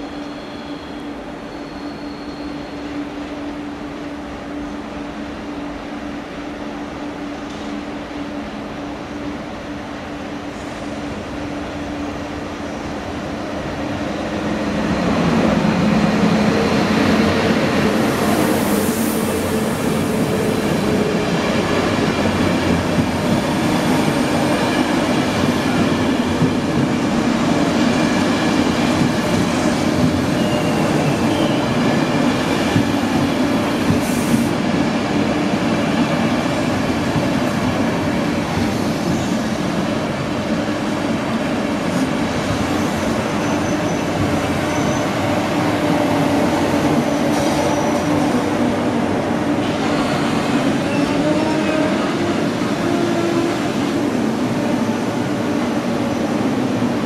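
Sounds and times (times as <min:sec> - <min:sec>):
train wheels rumbling on rail: 0:00.0 - 0:57.0
high wheel squeals: 0:00.1 - 0:02.9.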